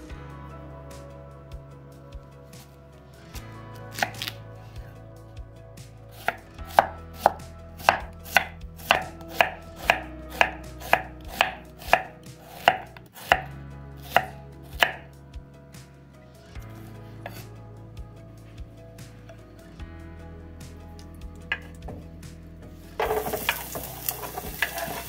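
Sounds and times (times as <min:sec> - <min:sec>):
knife chopping on wooden board: 0:06.2 - 0:13.5, 0:14.1 - 0:15.0.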